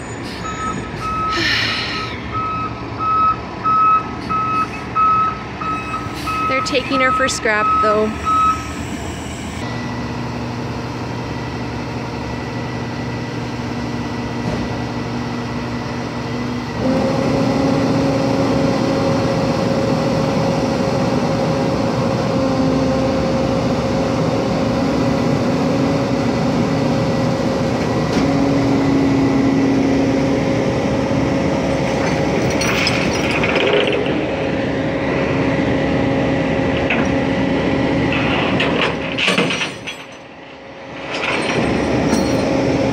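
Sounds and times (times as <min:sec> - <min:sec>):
truck engine running: 0:00.0 - 0:42.9
metal clanks: 0:38.1 - 0:40.3, 0:41.0 - 0:42.6.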